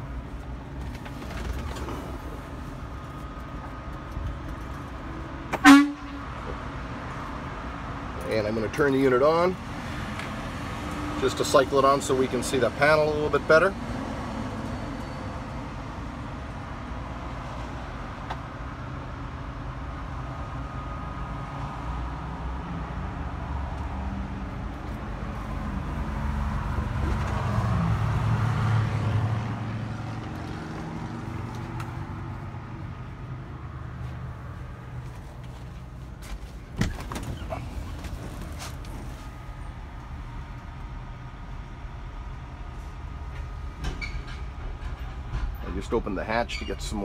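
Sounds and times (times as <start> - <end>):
low vehicle rumble: 9.6 - 47.0.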